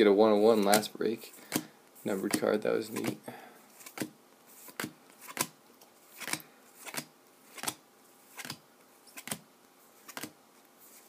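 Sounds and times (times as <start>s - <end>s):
cards snapping: 3.8s - 5.5s, 6.2s - 9.4s, 10.0s - 10.3s.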